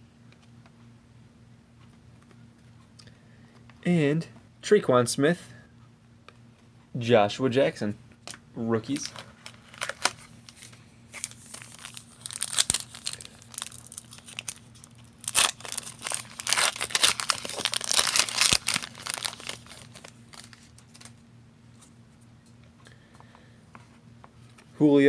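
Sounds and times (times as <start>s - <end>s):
card pack wrapper tearing: 8.9s - 21.2s.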